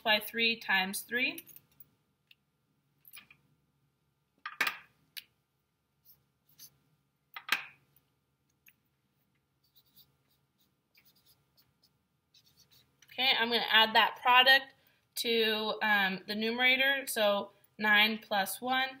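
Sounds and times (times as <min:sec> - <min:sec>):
marker scratching on paper: 0:06.0 - 0:06.8, 0:09.6 - 0:12.9.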